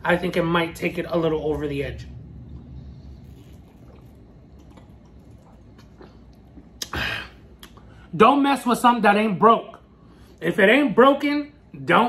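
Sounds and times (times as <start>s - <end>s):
person swallowing water: 2.1s - 7.8s.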